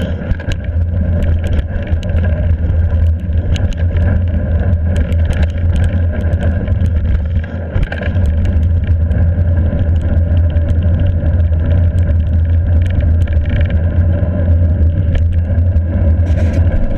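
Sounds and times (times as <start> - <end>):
bike clicks and rattles: 0.0 - 16.9.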